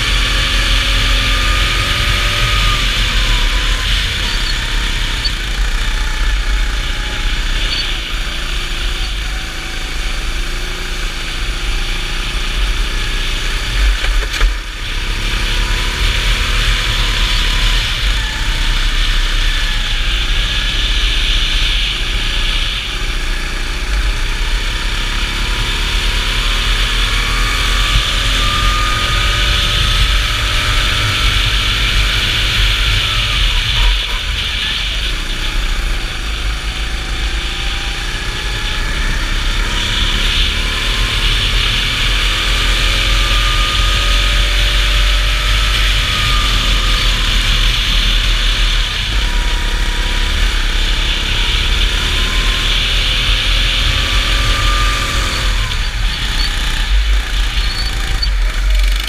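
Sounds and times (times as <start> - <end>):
go-kart engine racing: 0.0 - 59.0.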